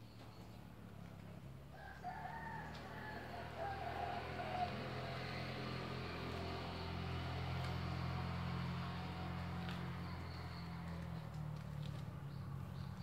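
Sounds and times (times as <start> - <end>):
low motor hum: 0.0 - 13.0
rooster crowing: 1.7 - 5.9.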